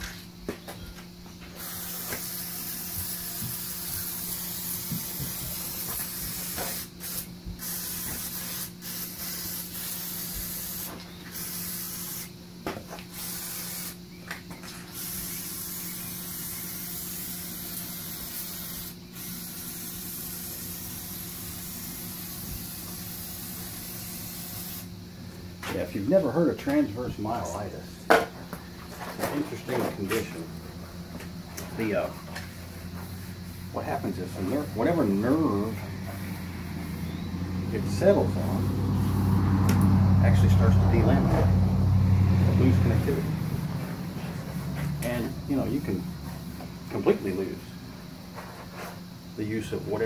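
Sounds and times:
aerosol can spraying: 1.6 - 14.0, 14.8 - 24.9.

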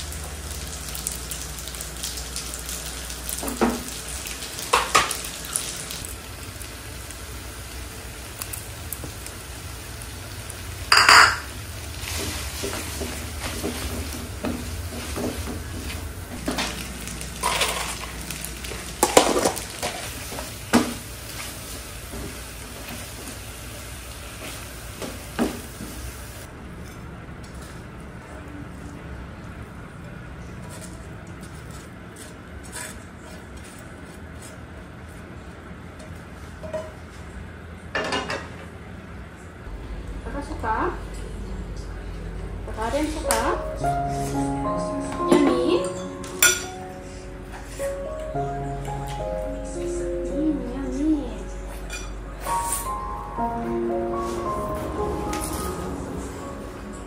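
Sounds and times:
spaghetti sizzling in a frying pan: 0.0 - 26.5.

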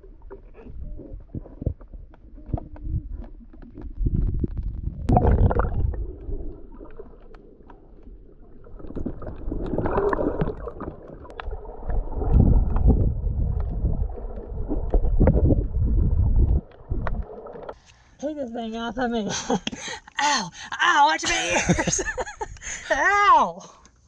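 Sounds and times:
water gurgling: 0.0 - 17.8
water splashing and sloshing: 0.0 - 18.2.

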